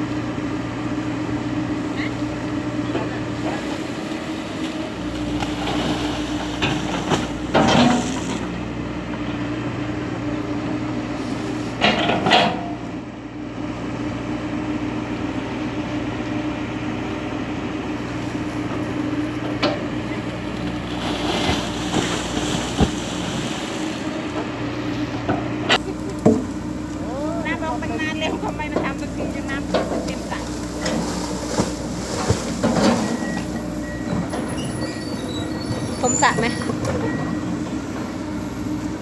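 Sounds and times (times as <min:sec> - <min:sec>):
excavator diesel engine running: 0:00.0 - 0:39.0
excavator bucket digging soil: 0:02.8 - 0:08.6, 0:11.2 - 0:12.9, 0:18.3 - 0:27.1, 0:28.2 - 0:38.2
metallic clanks and scrapes: 0:05.6 - 0:08.4, 0:11.8 - 0:12.7, 0:30.8 - 0:33.3.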